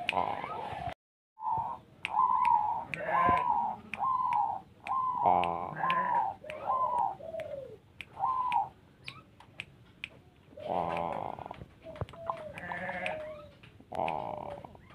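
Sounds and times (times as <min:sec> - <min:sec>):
dove cooing: 0:00.0 - 0:08.8, 0:10.5 - 0:14.9
sharp ticks: 0:13.9 - 0:14.6.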